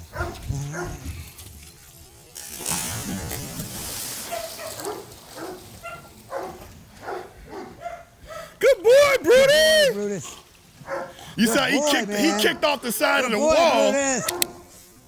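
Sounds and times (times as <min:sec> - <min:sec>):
dog splashing in pool: 0:02.6 - 0:07.4.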